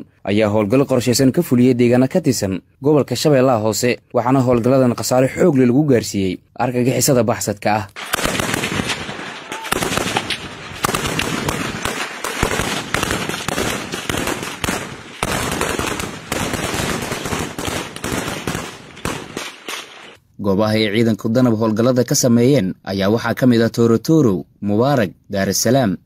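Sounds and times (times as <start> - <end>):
automatic weapon fire: 8.0 - 20.2
gunshots: 8.0 - 20.2.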